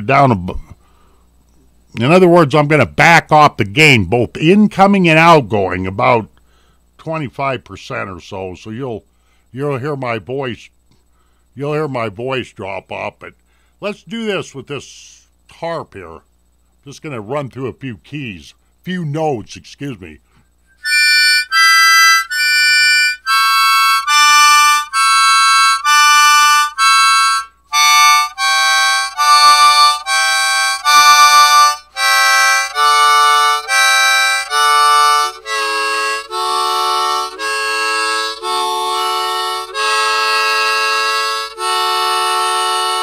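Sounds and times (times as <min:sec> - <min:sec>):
harmonica playing single notes: 0:20.6 - 0:43.0.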